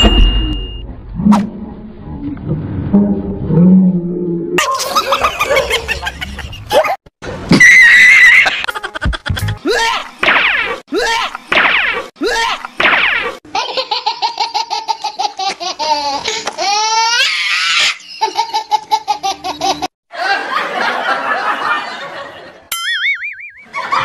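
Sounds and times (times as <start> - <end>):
loud rapid laughter: 4.6 - 7.0, 7.6 - 10.0
warbling whistle-like tone: 22.8 - 23.8.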